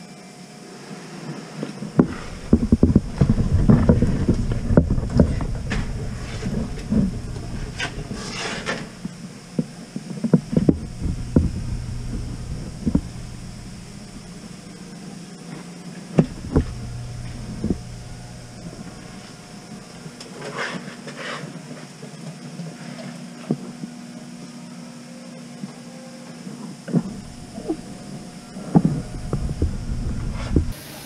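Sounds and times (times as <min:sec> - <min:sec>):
steady low hum: 0:01.8 - 0:20.6, 0:26.8 - 0:31.0
knocks and clunks: 0:02.0 - 0:09.7, 0:10.3 - 0:14.7.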